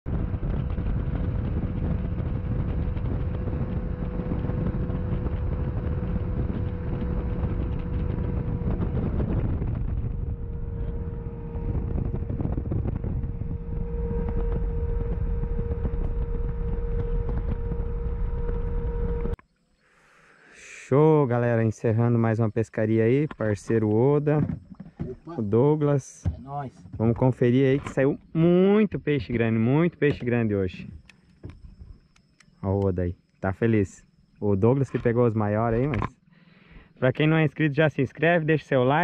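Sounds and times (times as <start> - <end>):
wind rushing over microphone: 0.0 - 19.4
outboard motor running fast: 0.1 - 19.4, 34.1 - 37.3.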